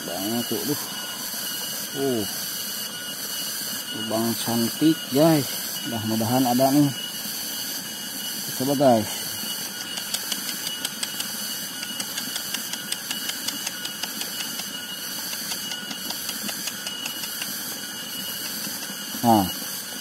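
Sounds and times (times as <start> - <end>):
steady high hiss: 0.0 - 20.0
faint irregular clicks: 9.8 - 17.6, 18.2 - 18.9.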